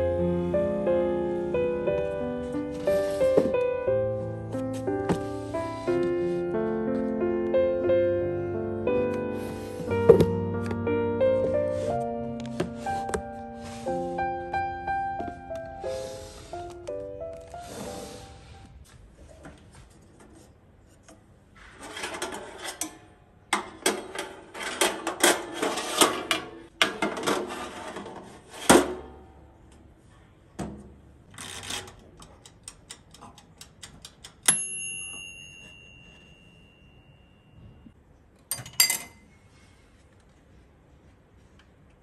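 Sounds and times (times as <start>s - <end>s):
sharp ringing clink: 34.5s - 37.6s
drinking glass clinking on metal rack: 38.5s - 39.2s.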